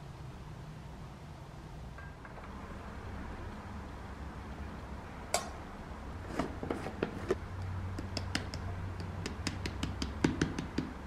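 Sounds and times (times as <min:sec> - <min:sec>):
low steady hum: 0:00.0 - 0:11.0
flour tapping in a metal sieve: 0:07.9 - 0:11.0.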